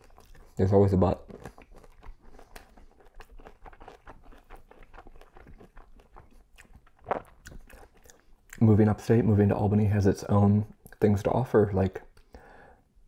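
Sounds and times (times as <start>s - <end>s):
chewing and crunching: 0.0s - 8.7s
mouth clicks: 6.6s - 8.6s.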